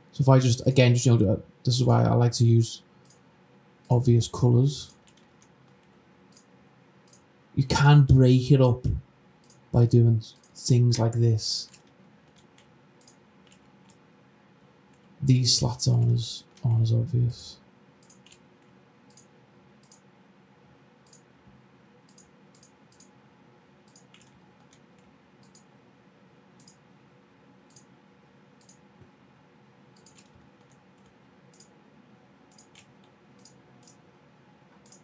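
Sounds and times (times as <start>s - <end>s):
faint room hum: 0.0s - 35.0s
computer mouse clicking: 3.0s - 3.2s, 4.9s - 7.3s, 9.4s - 9.7s, 11.6s - 14.0s, 18.0s - 20.1s, 21.0s - 21.3s, 22.1s - 23.2s, 23.8s - 25.7s, 26.6s - 26.8s, 27.7s - 27.9s, 28.6s - 28.8s, 29.9s - 31.8s, 32.5s - 34.0s, 34.7s - 35.0s.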